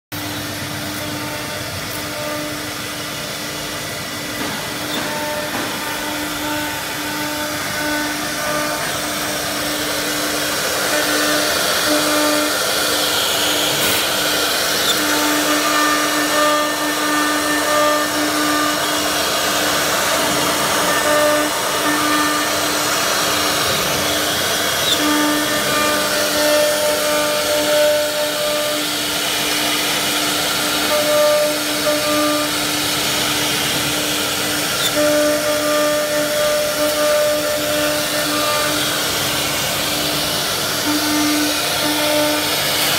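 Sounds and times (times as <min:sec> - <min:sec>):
cnc router running: 0:00.1 - 0:42.9.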